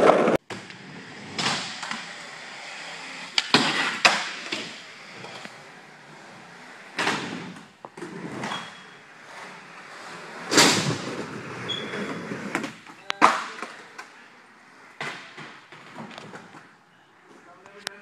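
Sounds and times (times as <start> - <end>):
skateboard wheels rolling: 0.0 - 16.8
skateboard hitting concrete: 3.3 - 4.8.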